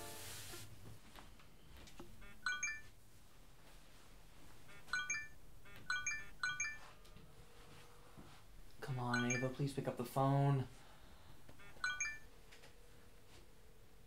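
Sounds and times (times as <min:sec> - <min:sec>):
text message notification chimes: 0:09.1 - 0:09.6, 0:11.8 - 0:12.2.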